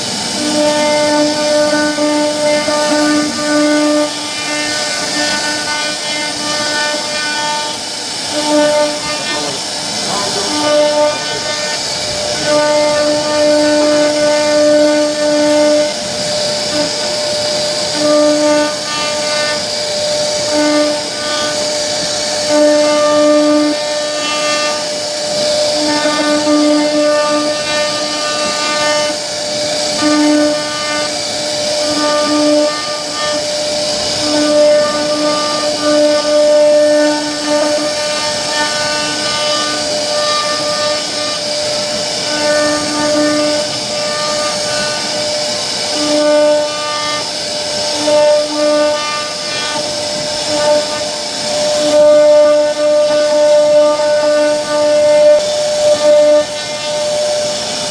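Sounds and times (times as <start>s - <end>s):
bit cutting into wood: 0.0s - 16.0s, 22.4s - 29.2s, 29.9s - 47.3s
router spindle whine: 0.0s - 57.9s.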